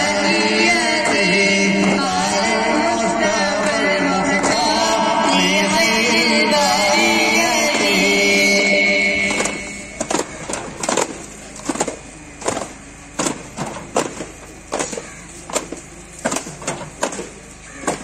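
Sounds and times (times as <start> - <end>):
low steady background noise: 0.0 - 18.0
frame drums beaten in marching rhythm: 9.3 - 11.8.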